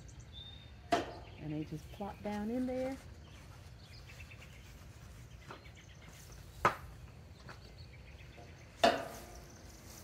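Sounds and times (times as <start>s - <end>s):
knocks with metallic ring: 8.8s - 9.3s.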